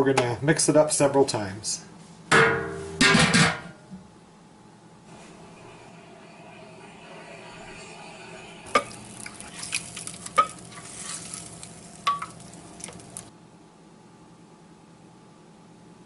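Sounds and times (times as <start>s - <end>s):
utensil clinking on glass: 8.7s - 13.2s
spatula stirring in sauce: 8.7s - 13.3s.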